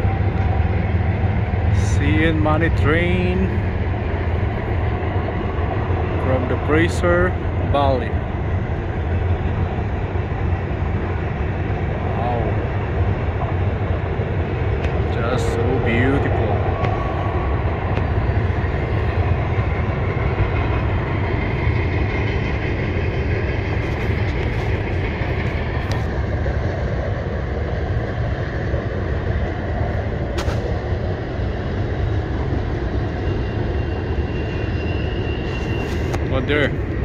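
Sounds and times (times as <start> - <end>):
train wheels rumbling on rail: 0.0 - 37.0.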